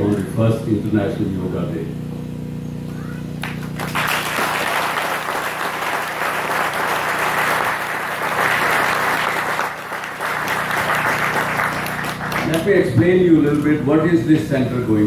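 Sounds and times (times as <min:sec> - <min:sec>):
audience applauding: 0:03.4 - 0:12.7.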